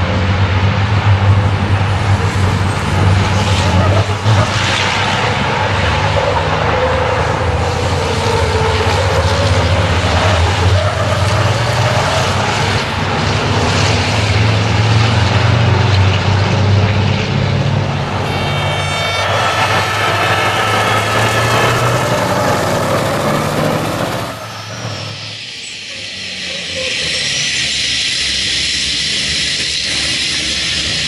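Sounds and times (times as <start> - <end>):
truck diesel engines revving: 0.0 - 31.0.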